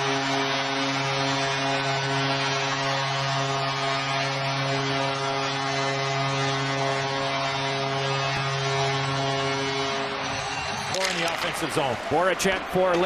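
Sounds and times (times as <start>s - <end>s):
arena crowd noise: 8.4s - 13.0s.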